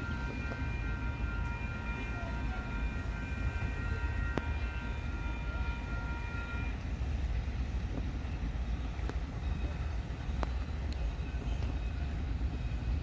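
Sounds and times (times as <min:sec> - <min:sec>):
distant steam whistle: 0:00.0 - 0:13.0
steady low rumble: 0:00.0 - 0:13.0.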